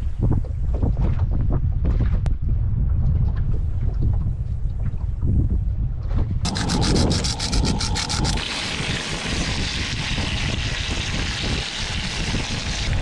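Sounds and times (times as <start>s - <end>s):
wind buffeting microphone: 0.0s - 13.0s
fish frying in oil: 6.5s - 13.0s.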